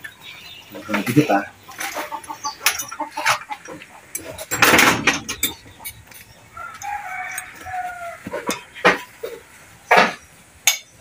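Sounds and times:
rooster crowing: 0:06.5 - 0:08.5.

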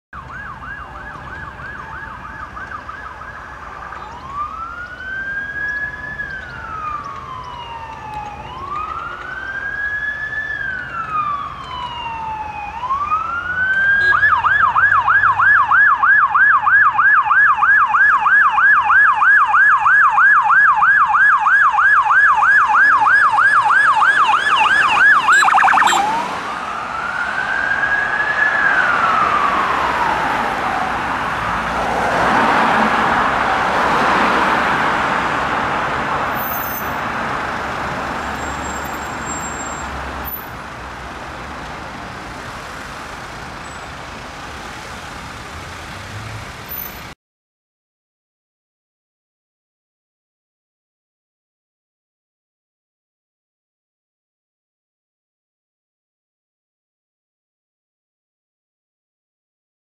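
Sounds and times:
ambulance siren: 0:00.1 - 0:44.6.

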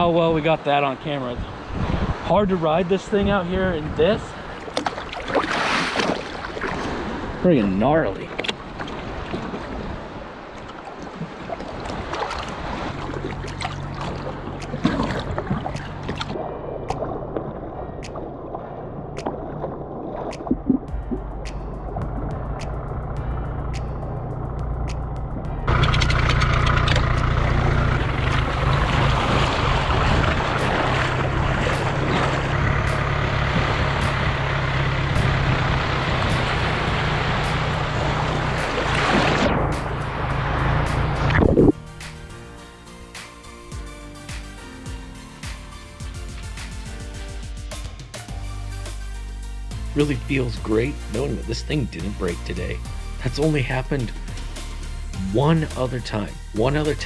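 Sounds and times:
water splashing against hull: 0:00.5 - 0:24.1, 0:24.8 - 0:42.3
wind noise on microphone: 0:01.3 - 0:04.5, 0:28.0 - 0:32.4, 0:41.1 - 0:41.8
tractor diesel engine running: 0:20.9 - 0:42.6.

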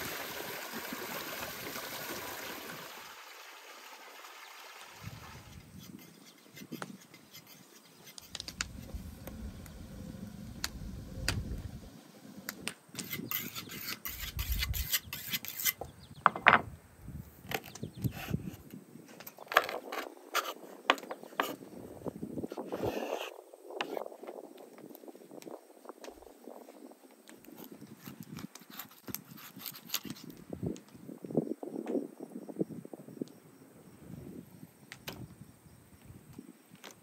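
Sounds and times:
knife scraping on whetstone: 0:05.7 - 0:09.8, 0:12.6 - 0:15.9, 0:19.9 - 0:20.7, 0:22.5 - 0:24.0, 0:27.6 - 0:30.3.

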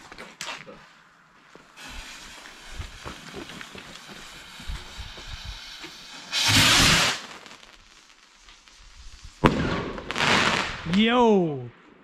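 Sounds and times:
firework rocket launching hiss: 0:01.7 - 0:10.9.

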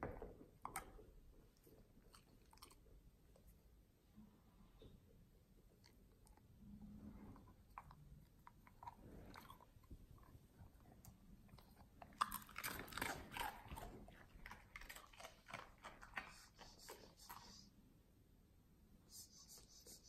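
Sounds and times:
dog crunching biscuit: 0:01.7 - 0:02.9, 0:07.6 - 0:17.4.

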